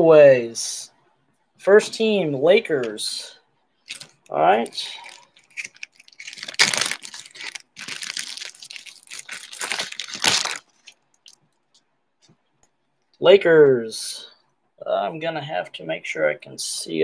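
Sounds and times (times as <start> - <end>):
wrapper crinkling and tearing: 3.9 - 11.6.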